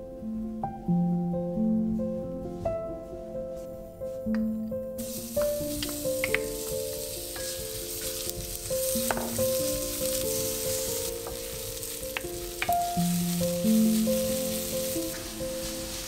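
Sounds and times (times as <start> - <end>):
soft background music: 0.0 - 16.0
onion sizzling in a frying pan: 5.0 - 16.0
wooden spoon clicking against pan: 5.4 - 6.7, 12.1 - 12.9.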